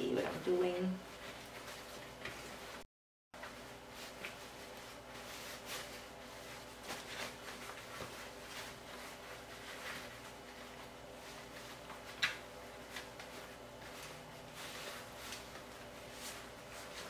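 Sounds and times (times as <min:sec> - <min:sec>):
fabric cover rustling: 0:00.2 - 0:17.0
low room hum: 0:03.4 - 0:17.0.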